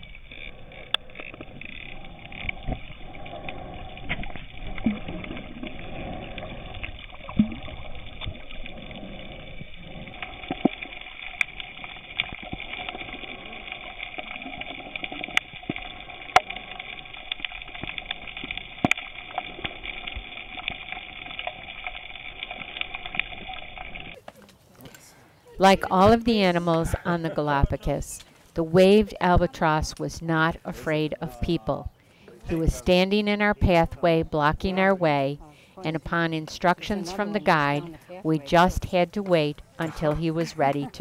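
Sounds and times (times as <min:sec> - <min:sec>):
sharp underwater clicks: 0:00.0 - 0:25.1.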